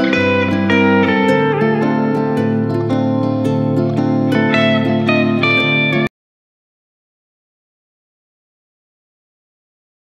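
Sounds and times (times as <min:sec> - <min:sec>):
background music sustained notes: 0:00.0 - 0:06.1.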